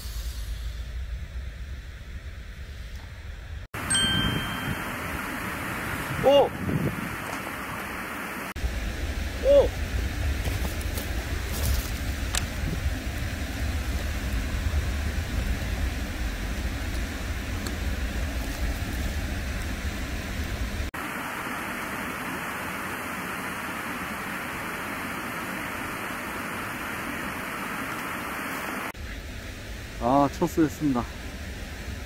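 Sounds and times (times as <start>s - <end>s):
wind rush on microphone: 3.9s - 20.9s.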